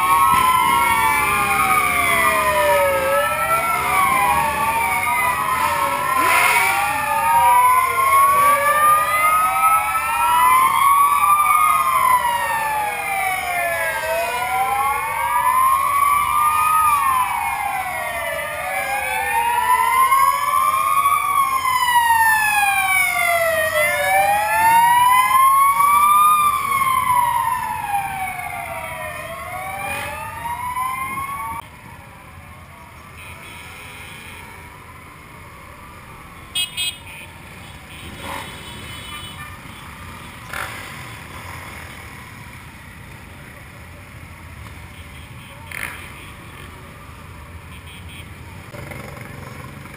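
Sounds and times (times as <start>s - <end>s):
fire engine sirens wailing: 0.0s - 38.1s.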